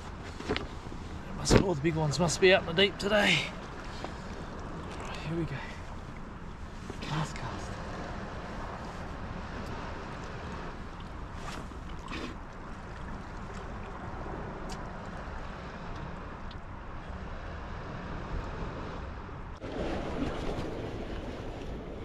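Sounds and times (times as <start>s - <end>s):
sea waves washing: 0.0s - 22.0s.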